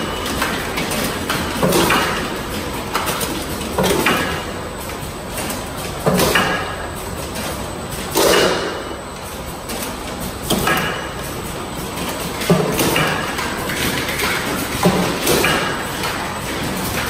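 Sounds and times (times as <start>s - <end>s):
bottling machine running: 0.0s - 17.0s.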